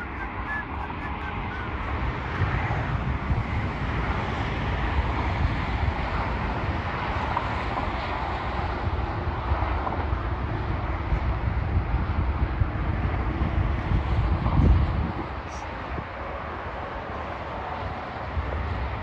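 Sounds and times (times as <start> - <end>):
distant road traffic: 0.0 - 19.0
wind buffeting microphone: 0.0 - 19.0.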